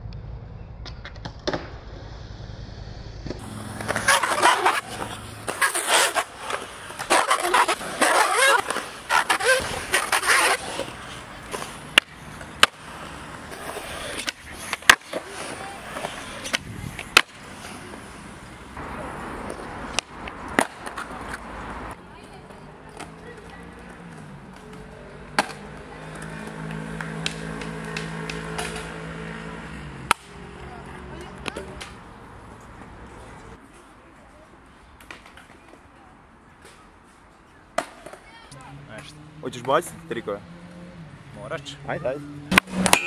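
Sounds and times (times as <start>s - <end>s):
skateboard wheels rolling on concrete: 0.0s - 43.0s
skateboard clacking on concrete: 3.4s - 18.5s, 19.4s - 21.5s.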